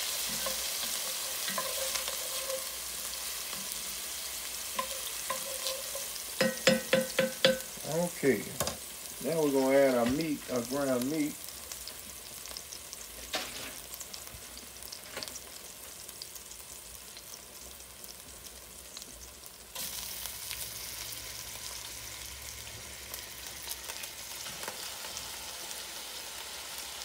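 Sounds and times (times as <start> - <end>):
onions sizzling in hot oil: 0.0 - 27.0.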